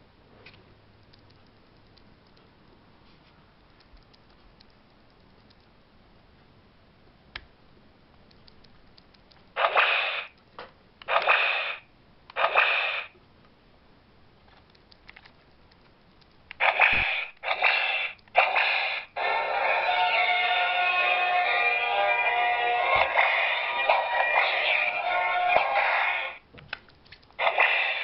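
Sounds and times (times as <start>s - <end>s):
electronic whip-crack sound effect: 9.6s - 10.3s, 11.1s - 11.8s, 12.4s - 13.1s, 16.6s - 19.1s, 27.4s - 28.0s.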